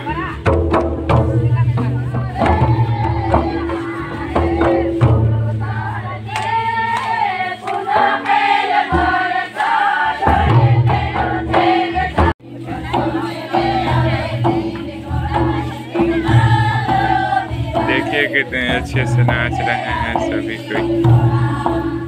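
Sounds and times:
group of voices singing: 0:01.2 - 0:22.0
low bass beat: 0:10.3 - 0:22.0.

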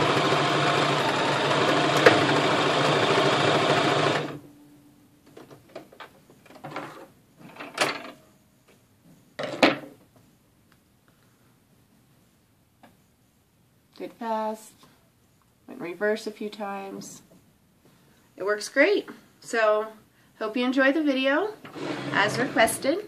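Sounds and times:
sewing machine stitching: 0:00.0 - 0:04.4, 0:21.6 - 0:23.0.

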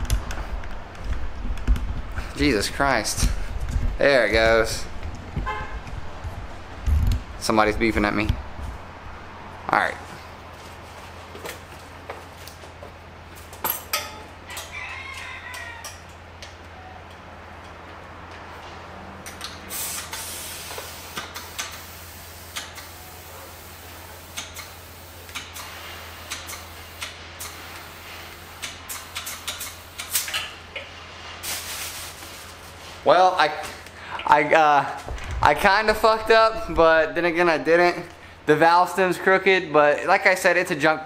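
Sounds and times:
rooster crowing: 0:14.4 - 0:17.0
air hissing into tire: 0:19.5 - 0:30.4.

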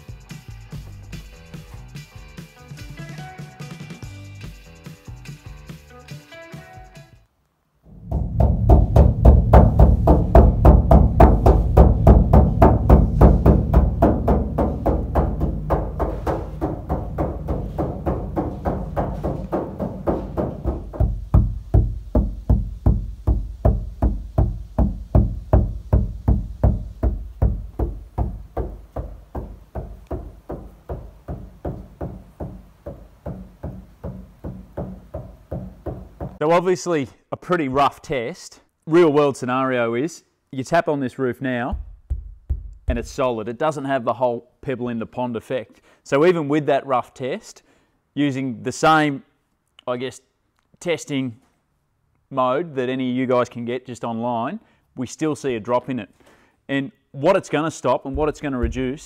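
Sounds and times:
tapping on sheet-metal roof: 0:07.9 - 0:36.4, 0:58.1 - 0:59.0.

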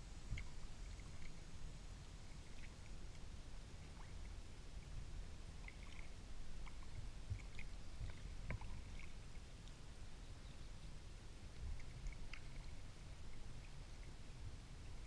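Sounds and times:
low steady rumble: 0:00.0 - 0:15.0
water drips and small splashes: 0:00.0 - 0:15.0.

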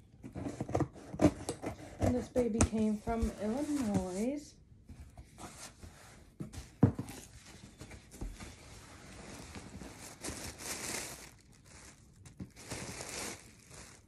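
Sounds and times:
paper packaging rustling: 0:02.0 - 0:04.4, 0:07.0 - 0:14.0.

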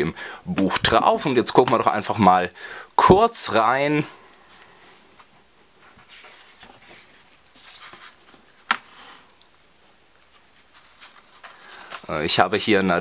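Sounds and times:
book pages turning: 0:05.2 - 0:09.3, 0:10.2 - 0:12.3.

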